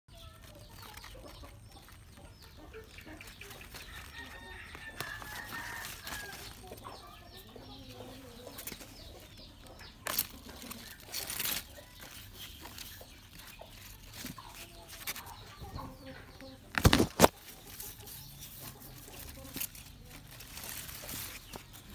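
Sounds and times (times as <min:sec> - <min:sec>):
chickens clucking: 0:00.1 - 0:21.9
radishes pulled from soil: 0:02.8 - 0:07.2, 0:08.0 - 0:15.6, 0:16.4 - 0:21.9.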